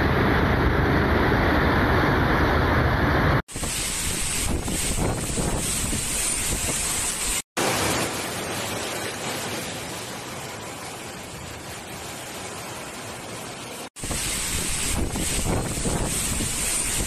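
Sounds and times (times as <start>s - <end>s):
floodwater rushing down street: 0.0s - 17.0s
heavy rain hissing: 3.2s - 17.0s
wind on microphone: 3.5s - 7.3s, 14.0s - 17.0s.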